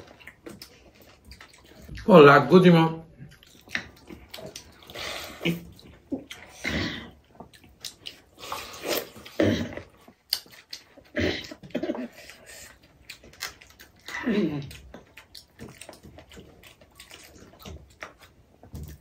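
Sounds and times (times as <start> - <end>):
slurping mouth sounds: 3.4 - 10.7.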